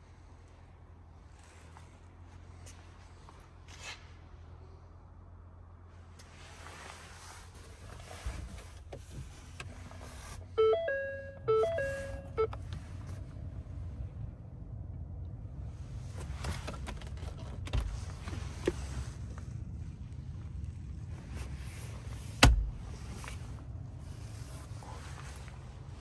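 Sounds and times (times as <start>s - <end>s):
rustle of handling: 6.2s - 10.4s
low steady hum: 8.2s - 16.6s
dashboard warning chime: 10.5s - 12.7s.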